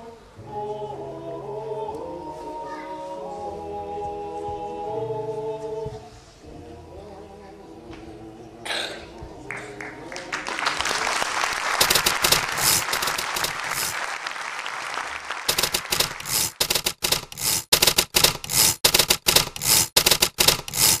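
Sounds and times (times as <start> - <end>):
audience applauding: 9.5 - 16.2
rhythmic clapping in unison: 9.5 - 21.0.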